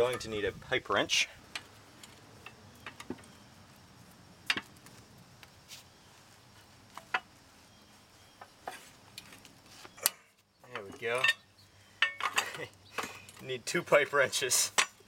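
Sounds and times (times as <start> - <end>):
metal wrenches clinking on nut: 10.7 - 11.4, 12.0 - 13.2.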